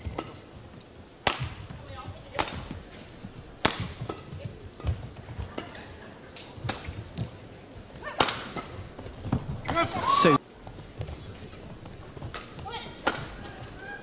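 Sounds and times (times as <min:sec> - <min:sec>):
badminton racket hitting shuttlecock: 0:01.2 - 0:05.8, 0:06.6 - 0:07.0, 0:12.3 - 0:13.6.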